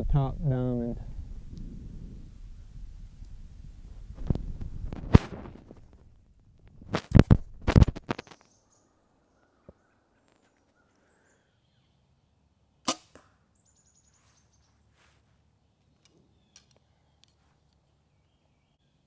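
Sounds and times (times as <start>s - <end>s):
bow string release crack: 6.9s - 8.5s, 12.9s - 13.4s.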